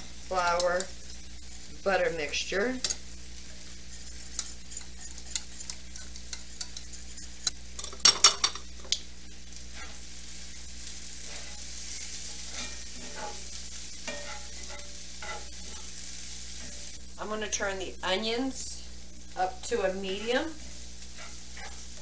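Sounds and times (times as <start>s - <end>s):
onions sizzling in oil: 0.0s - 22.0s
metal whisk scraping saucepan: 3.9s - 7.5s, 12.3s - 13.4s, 14.1s - 15.8s, 20.1s - 22.0s.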